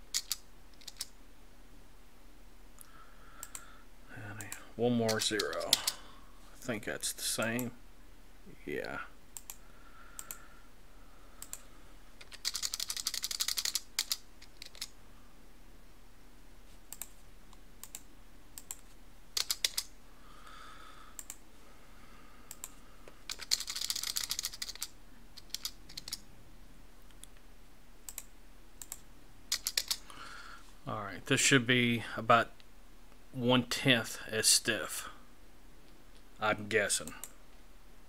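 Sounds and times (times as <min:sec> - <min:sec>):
keyboard typing: 0:00.1 - 0:01.1, 0:04.4 - 0:06.0, 0:12.2 - 0:14.9, 0:17.8 - 0:19.9, 0:22.5 - 0:26.2, 0:28.1 - 0:30.0.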